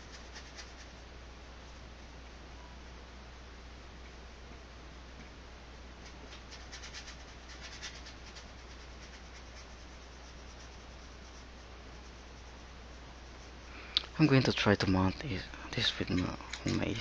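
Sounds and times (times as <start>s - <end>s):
brush scrubbing paint on canvas: 0.0s - 1.1s, 6.0s - 13.7s.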